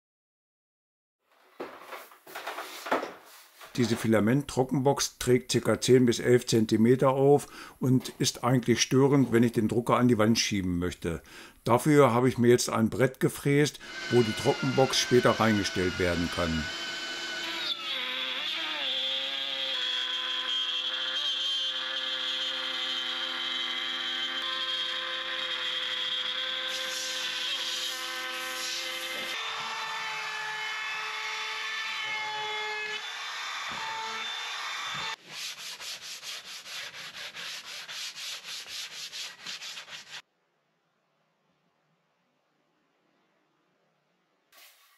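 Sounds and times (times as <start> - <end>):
router spindle whine: 13.8 - 29.9
sandpaper rubbing on wood: 35.2 - 40.2.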